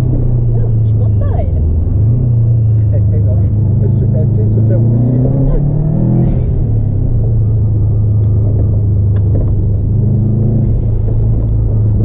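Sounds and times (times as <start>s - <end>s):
car engine and road noise drone: 0.0s - 12.0s.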